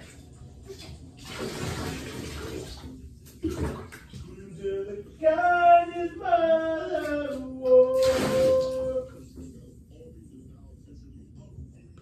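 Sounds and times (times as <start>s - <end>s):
water splashing into bathtub: 0.0s - 4.5s, 6.9s - 9.6s.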